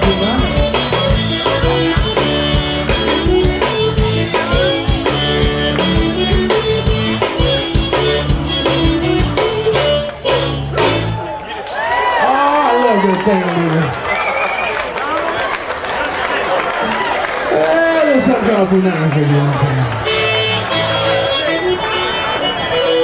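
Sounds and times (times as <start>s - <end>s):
live band playing dance tune: 0.0s - 11.3s, 16.9s - 23.0s.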